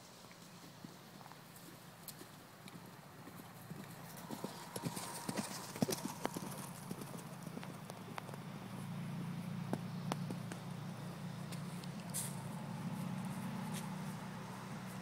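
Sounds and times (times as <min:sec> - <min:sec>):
horse hoofbeats on sand: 0:01.2 - 0:08.4.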